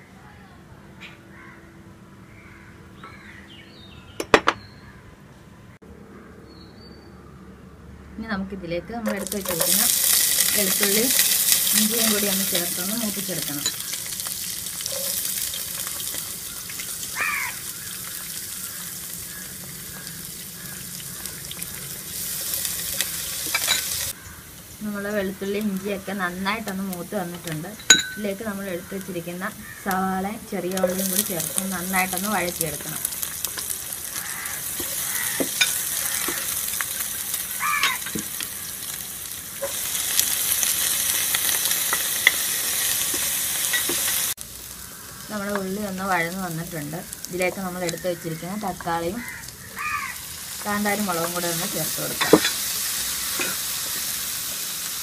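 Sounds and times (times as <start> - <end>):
garlic sizzling in hot oil: 9.0 - 55.0.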